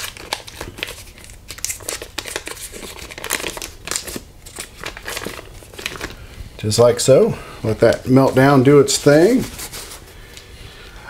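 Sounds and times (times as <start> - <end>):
paper wrapper crinkling: 0.0 - 6.4.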